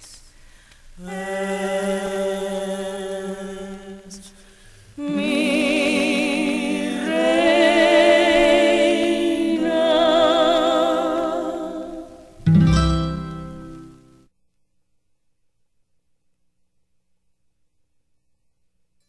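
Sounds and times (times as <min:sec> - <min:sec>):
vocal trio singing in harmony: 0:01.0 - 0:13.2.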